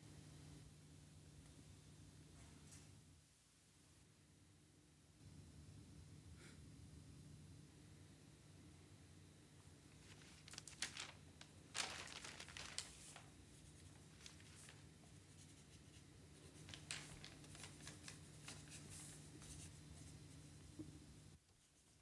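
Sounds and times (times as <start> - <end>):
low room hum: 0.0 - 22.0
paper rustling: 9.9 - 20.5.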